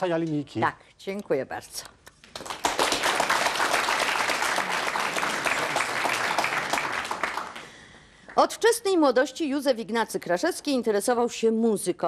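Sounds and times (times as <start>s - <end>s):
audience applauding: 2.3s - 8.0s.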